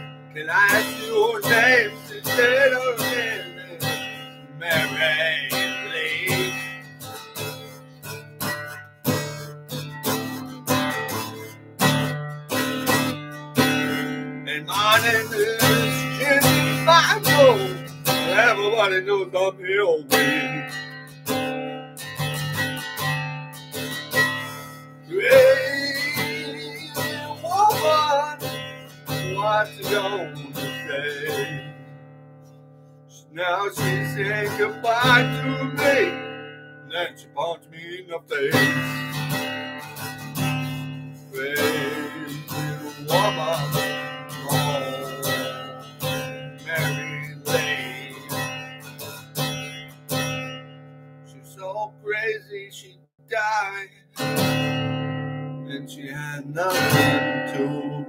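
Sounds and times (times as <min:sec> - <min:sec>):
man singing: 0:00.0 - 0:07.7, 0:13.8 - 0:20.9, 0:25.1 - 0:31.9, 0:33.1 - 0:39.3, 0:41.3 - 0:48.6, 0:51.3 - 0:54.5, 0:55.7 - 0:58.0
acoustic guitar strumming: 0:00.0 - 0:58.0.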